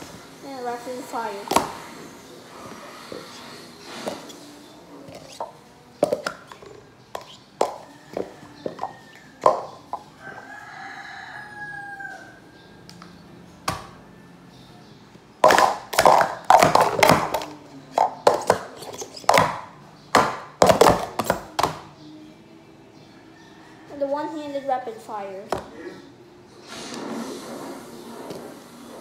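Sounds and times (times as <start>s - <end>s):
plastic cups clacking on a mat: 5.0s - 10.1s, 15.4s - 21.9s
rooster crowing: 7.8s - 12.9s, 23.1s - 24.6s.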